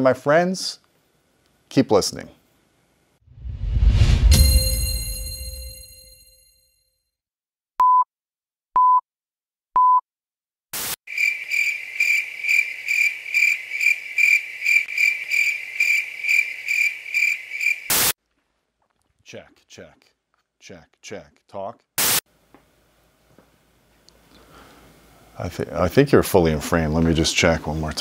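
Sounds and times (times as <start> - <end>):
ringing musical sting: 3.8 - 6.4
burst of noise: 17.9 - 18.2.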